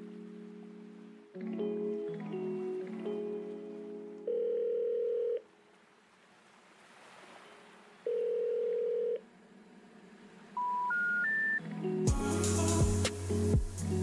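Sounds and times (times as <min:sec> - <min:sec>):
telephone ringback tone: 0:04.2 - 0:05.5, 0:08.1 - 0:09.2, 0:10.6 - 0:11.6.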